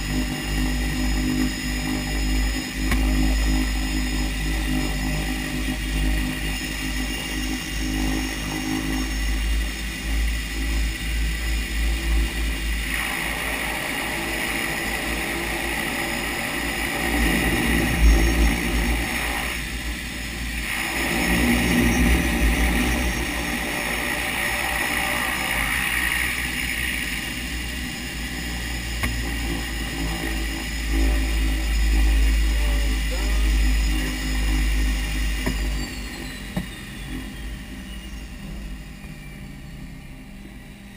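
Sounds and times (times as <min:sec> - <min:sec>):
high engine whine: 0:00.0 - 0:40.9
turboprop engines rumbling: 0:00.0 - 0:40.9.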